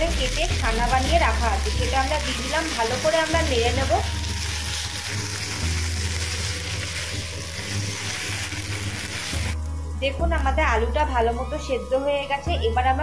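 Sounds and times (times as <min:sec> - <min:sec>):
background music: 0:00.0 - 0:13.0
food sizzling in oil: 0:00.0 - 0:13.0
spatula stirring in pan: 0:01.8 - 0:09.6.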